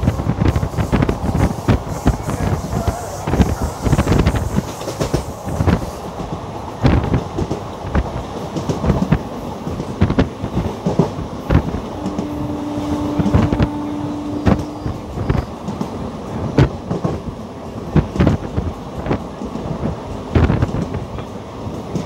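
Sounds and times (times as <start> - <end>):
train wheels rumbling on track: 0.0 - 22.0
long steady tone: 11.9 - 15.7.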